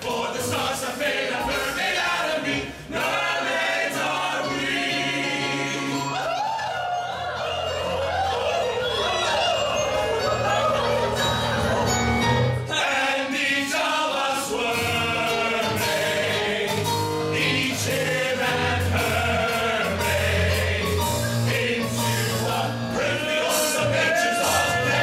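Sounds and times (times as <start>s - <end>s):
instrumental accompaniment: 0.0s - 25.0s
men singing in chorus: 12.7s - 25.0s.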